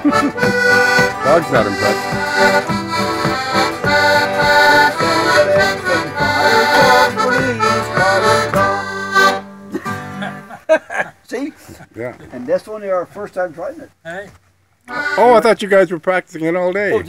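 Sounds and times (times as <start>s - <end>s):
button accordion playing lively tune: 0.0s - 10.2s, 14.9s - 15.6s.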